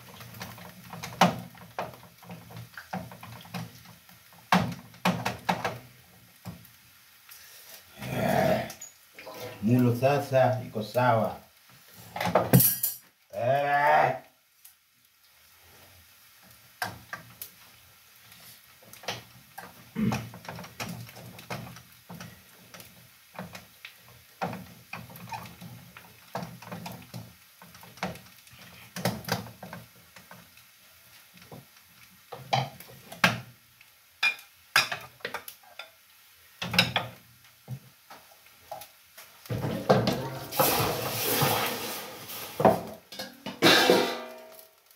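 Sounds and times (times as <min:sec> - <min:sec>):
wooden spoon scraping metal pot: 0:09.2 - 0:09.8, 0:39.5 - 0:44.3.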